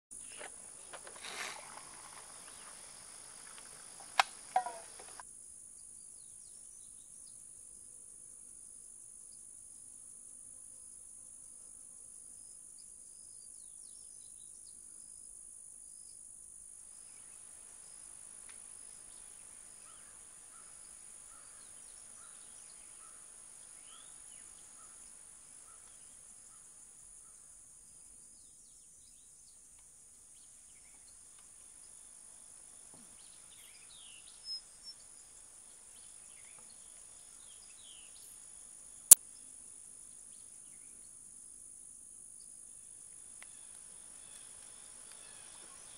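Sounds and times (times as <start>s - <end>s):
bird calls: 0.2s - 5.2s
insect chorus: 0.2s - 45.9s.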